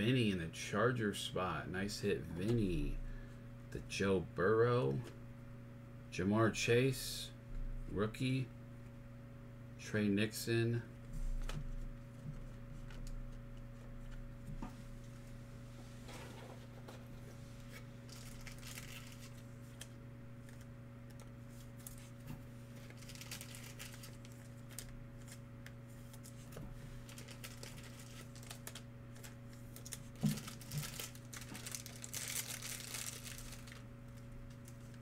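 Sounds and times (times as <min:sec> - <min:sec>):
low electrical hum: 0:00.0 - 0:35.0
plastic crinkling and rustling: 0:17.6 - 0:35.0.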